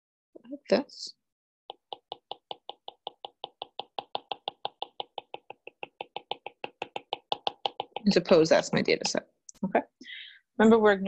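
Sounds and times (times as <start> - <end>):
stylus tapping on tablet: 1.7 - 9.2.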